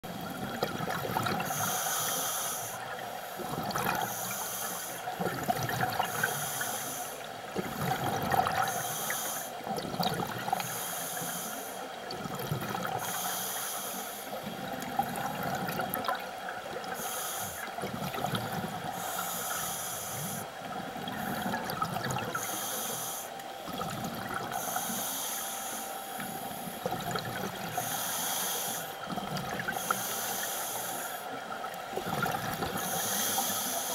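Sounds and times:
steady hum: 0:00.0 - 0:33.9
hissing regulator breaths: 0:01.4 - 0:05.1, 0:06.0 - 0:08.0, 0:08.6 - 0:09.6, 0:10.5 - 0:11.9, 0:12.9 - 0:14.5, 0:16.9 - 0:17.8, 0:18.9 - 0:21.6, 0:22.2 - 0:23.4, 0:24.5 - 0:27.0, 0:27.6 - 0:31.4, 0:32.6 - 0:33.9.

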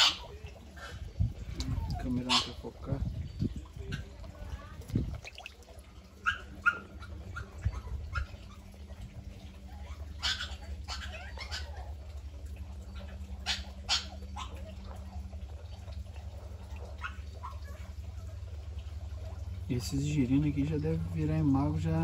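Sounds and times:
dog barking: 0:00.0 - 0:01.0, 0:02.0 - 0:02.7, 0:06.2 - 0:08.6, 0:09.8 - 0:12.0, 0:13.0 - 0:14.9, 0:16.7 - 0:17.9
low steady rumble: 0:00.0 - 0:22.0.

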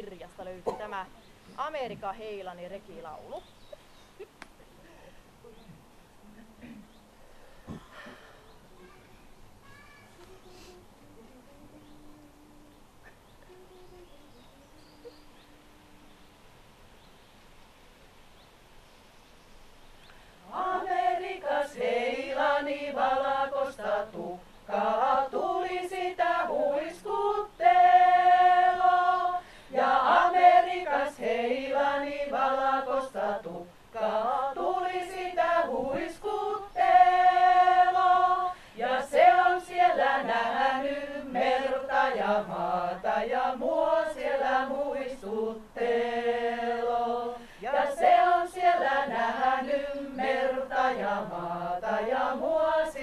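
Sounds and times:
singers breathing: 0:04.6 - 0:05.4, 0:07.1 - 0:08.7, 0:10.4 - 0:10.9, 0:20.1 - 0:20.5, 0:29.3 - 0:29.8, 0:38.4 - 0:38.8, 0:47.3 - 0:47.7
women singing a cappella: 0:10.4 - 0:16.3, 0:20.4 - 0:53.0.

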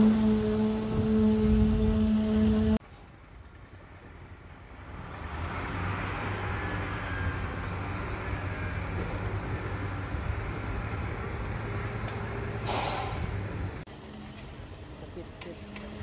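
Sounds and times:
low machinery engine hum: 0:00.0 - 0:04.8.

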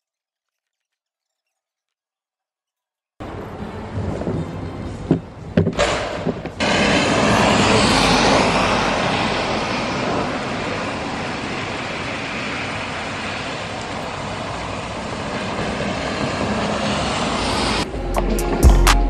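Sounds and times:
tyres hissing on wet road: 0:03.2 - 0:17.9.

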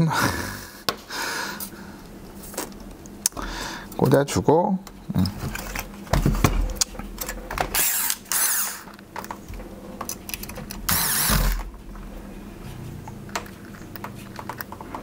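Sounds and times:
electric screwdriver driving screws: 0:07.7 - 0:08.9, 0:10.8 - 0:11.7.

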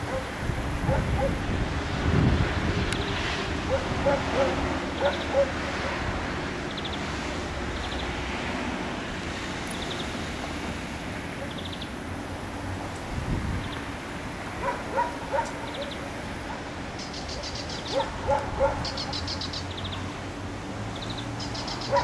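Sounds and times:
wind blowing on microphone: 0:00.0 - 0:07.8, 0:12.7 - 0:16.0
steady outdoor hiss: 0:00.0 - 0:22.0.

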